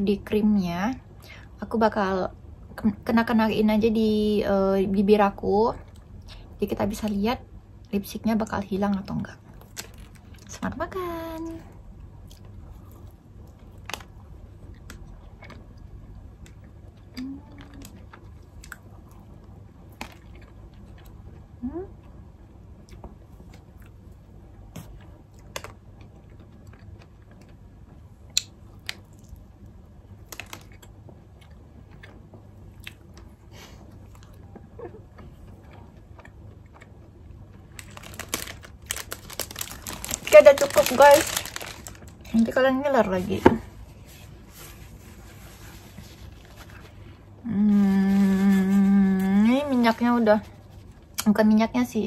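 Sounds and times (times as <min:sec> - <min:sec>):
biting and chewing donut: 0:34.0 - 0:42.3.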